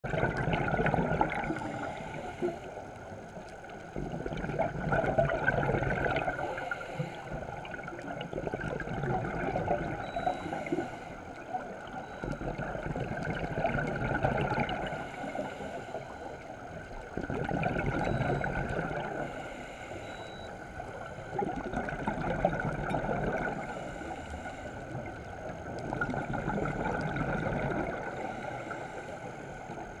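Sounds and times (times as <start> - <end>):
exhaled bubbles rushing: 0.0 - 1.9, 4.0 - 6.6, 7.4 - 10.2, 11.8 - 15.0, 17.1 - 19.2, 21.3 - 23.6, 25.7 - 28.2
diver inhaling through regulator: 1.5 - 2.8, 6.3 - 7.6, 10.1 - 11.4, 14.8 - 16.5, 19.0 - 20.6, 23.5 - 25.1, 27.9 - 30.0.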